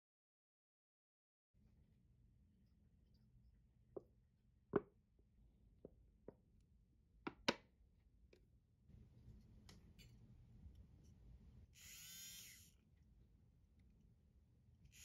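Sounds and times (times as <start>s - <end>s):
milk frother motor whirring: 11.7s - 12.8s.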